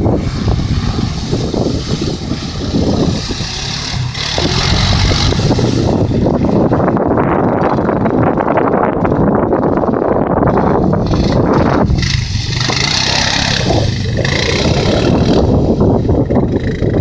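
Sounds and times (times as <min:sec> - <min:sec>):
hiss of water spray: 0:00.0 - 0:06.2
quad bike engine running: 0:00.0 - 0:17.0.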